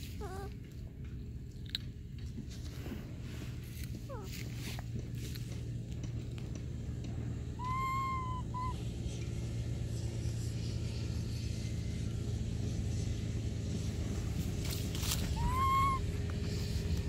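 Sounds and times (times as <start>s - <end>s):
young monkey coo call: 0.0s - 0.5s, 7.5s - 8.8s, 15.1s - 16.3s.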